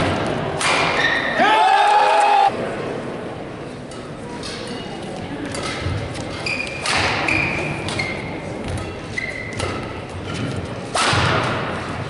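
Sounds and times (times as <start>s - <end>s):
court shoes squeaking: 4.2s - 10.9s
rackets striking shuttlecock: 5.5s - 11.8s.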